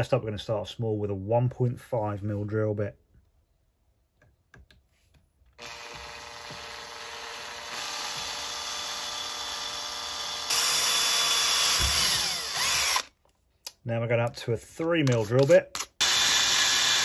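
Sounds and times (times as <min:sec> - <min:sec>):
cordless drill motor running: 0:05.6 - 0:13.2, 0:16.0 - 0:17.0.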